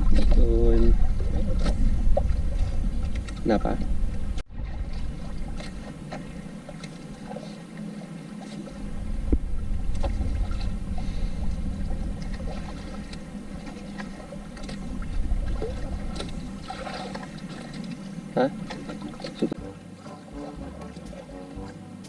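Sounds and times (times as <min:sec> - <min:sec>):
low rumble: 0:00.0 - 0:22.0
water lapping against hull: 0:00.0 - 0:22.0.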